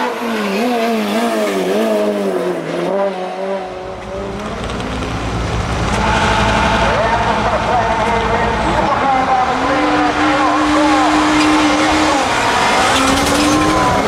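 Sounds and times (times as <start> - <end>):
race car engine revving: 0.0 - 14.0
low engine rumble: 3.7 - 12.4.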